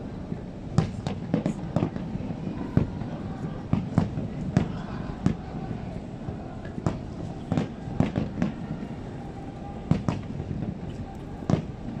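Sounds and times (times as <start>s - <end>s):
fireworks bursting: 6.3s - 8.8s, 9.8s - 12.0s.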